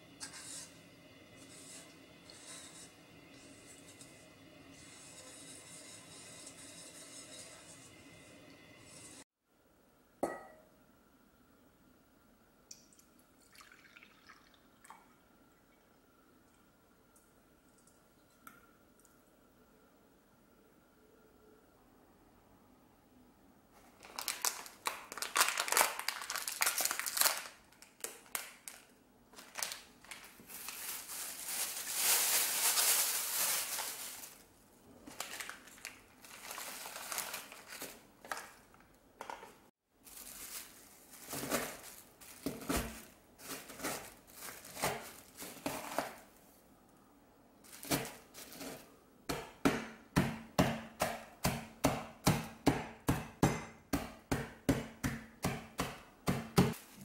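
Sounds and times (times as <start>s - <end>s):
plastic wrapper crinkling: 23.8s - 38.8s, 40.0s - 46.4s, 47.6s - 48.8s
rolling pin pounding cookies: 49.3s - 56.8s.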